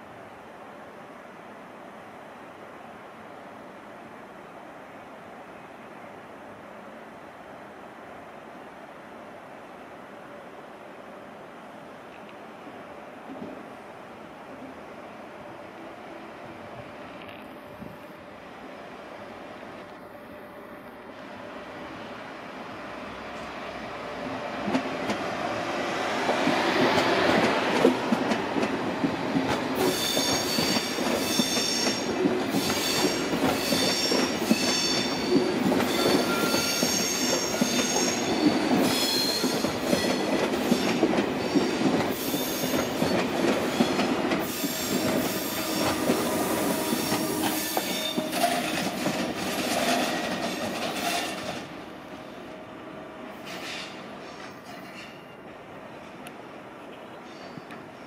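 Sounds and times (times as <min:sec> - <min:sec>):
train rumbling: 0:09.1 - 0:58.0
train wheel squeal: 0:29.8 - 0:51.6, 0:53.3 - 0:55.4, 0:57.2 - 0:58.0.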